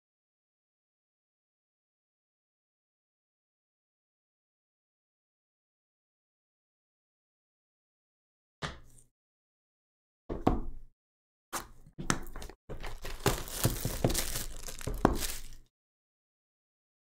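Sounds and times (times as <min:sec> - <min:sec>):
plastic wrap crinkling and tearing: 0:12.8 - 0:15.7.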